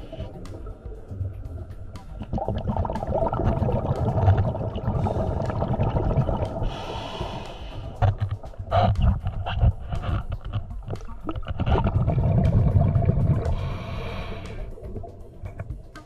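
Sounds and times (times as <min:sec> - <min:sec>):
underwater exhaled breath bubbling: 0:02.2 - 0:10.2, 0:11.4 - 0:15.1.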